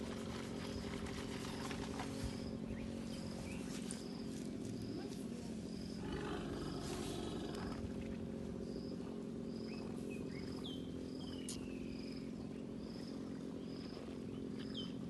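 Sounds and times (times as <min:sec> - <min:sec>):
elephant calf low rumble: 0:00.0 - 0:15.0
high insect chirp: 0:00.3 - 0:14.9.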